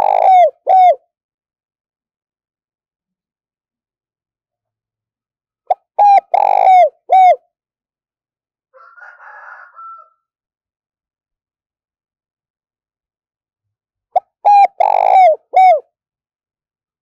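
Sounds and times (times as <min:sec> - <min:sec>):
dove cooing: 0:00.0 - 0:01.0, 0:05.7 - 0:07.4, 0:14.2 - 0:15.9.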